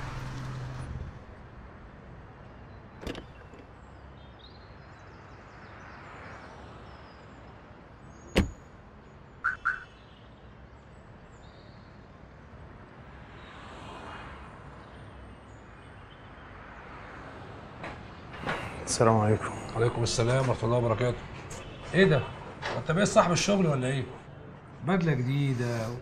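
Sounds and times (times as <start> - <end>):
street traffic hum: 0.0 - 26.0
car door slamming: 3.0 - 3.6, 8.3 - 8.6.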